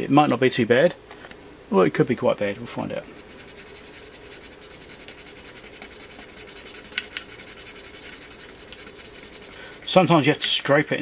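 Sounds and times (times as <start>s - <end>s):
brush scratching circuit board: 3.1s - 11.0s.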